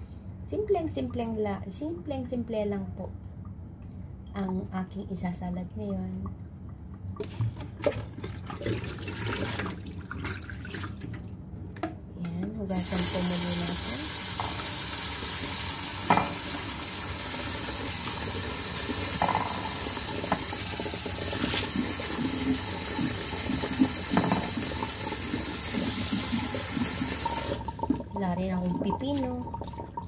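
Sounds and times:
tap running into a bowl: 14.2 - 14.9, 16.0 - 16.8, 18.8 - 27.6.

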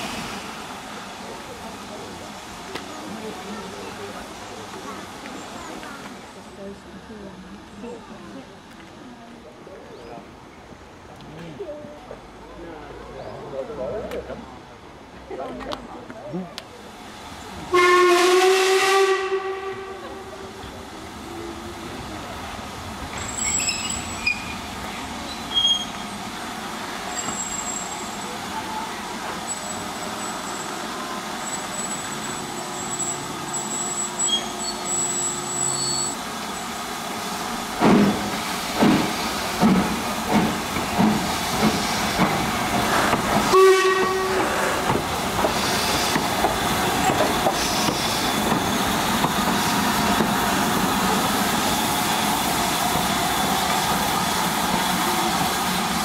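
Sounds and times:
steam hissing: 0.0 - 6.3, 21.2 - 56.0
steam locomotive whistle: 17.7 - 20.2, 43.5 - 44.6.

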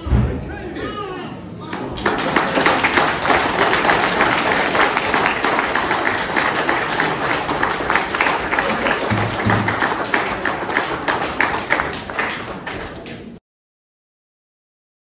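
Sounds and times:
crowd applauding: 1.6 - 13.4.

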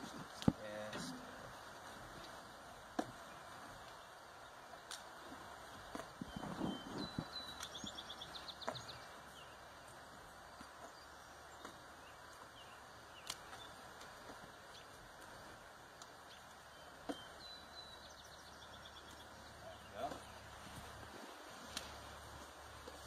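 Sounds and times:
small bird singing: 3.2 - 15.5, 16.1 - 21.1.

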